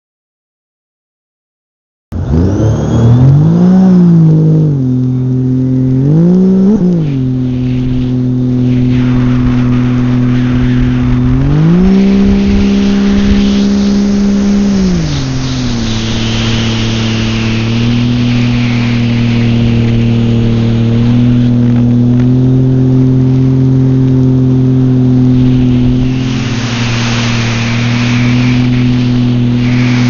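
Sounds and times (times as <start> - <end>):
personal watercraft engine revving: 2.2 - 30.0
water rushing against hull: 7.2 - 30.0.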